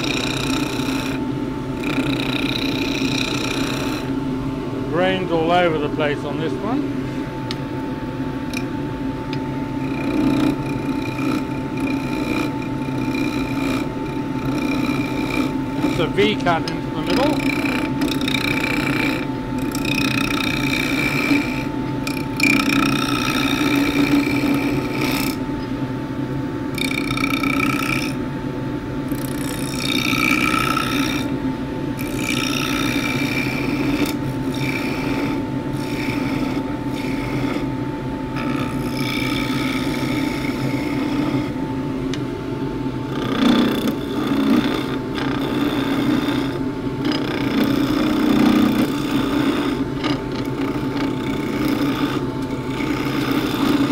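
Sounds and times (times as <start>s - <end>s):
wood lathe humming: 0.0s - 53.9s
chisel scraping wood: 1.8s - 4.1s, 9.8s - 25.4s, 26.8s - 28.2s, 29.2s - 31.3s, 32.0s - 37.7s, 38.4s - 41.6s, 43.1s - 53.9s.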